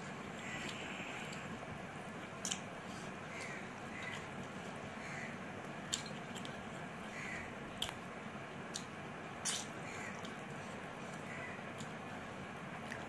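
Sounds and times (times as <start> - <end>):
steady background hiss: 0.0 - 13.0
person chewing: 2.2 - 4.3, 7.7 - 8.0, 8.7 - 12.0, 12.8 - 13.0
wet mouth smacks: 8.7 - 10.4.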